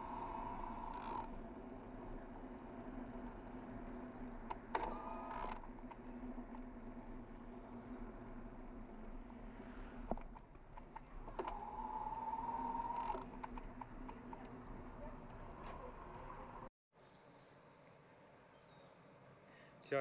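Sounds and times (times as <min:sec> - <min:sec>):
electric motor hum: 0:00.0 - 0:15.6.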